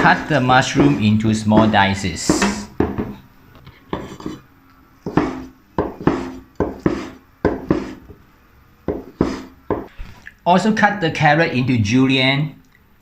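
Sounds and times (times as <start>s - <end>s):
cleaver chopping on cutting board: 0.8s - 1.0s, 1.6s - 3.1s, 5.1s - 8.0s, 8.9s - 9.9s.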